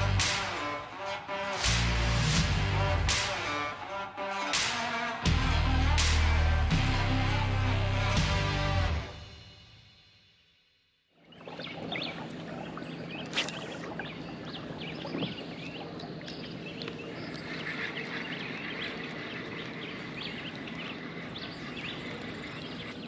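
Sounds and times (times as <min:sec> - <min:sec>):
small birds chirping: 0:11.2 - 0:23.0.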